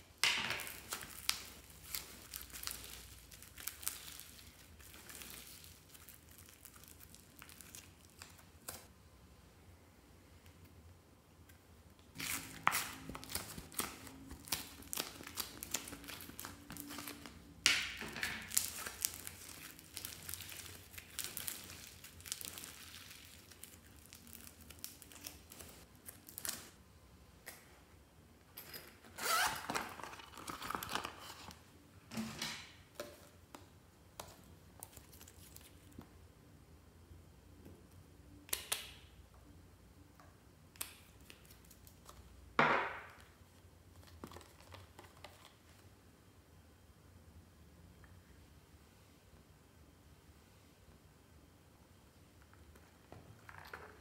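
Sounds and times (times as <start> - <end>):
slime crackling and popping: 0.6 - 8.9, 12.2 - 17.3, 18.4 - 26.8.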